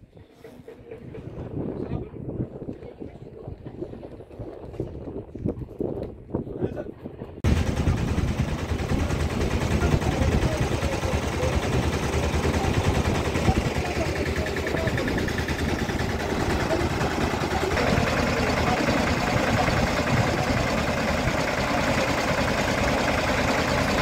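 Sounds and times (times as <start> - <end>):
small rail trolley engine running: 7.4 - 24.0
people talking: 7.6 - 24.0.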